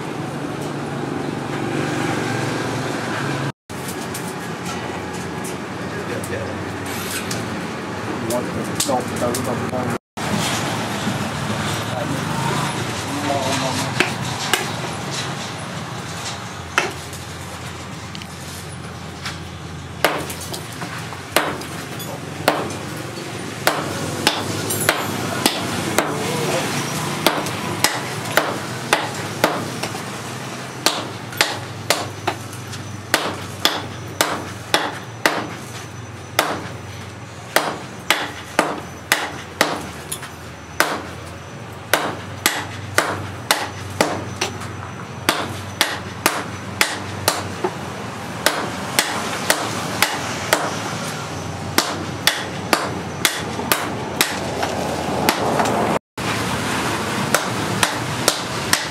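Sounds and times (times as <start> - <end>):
hammer striking hot steel: 16.8 - 17.2, 20.0 - 30.0, 30.8 - 36.8, 37.5 - 41.2, 41.9 - 44.7, 45.3 - 47.8, 48.4 - 50.8, 51.7 - 54.7, 55.3 - 55.8, 57.3 - 58.9.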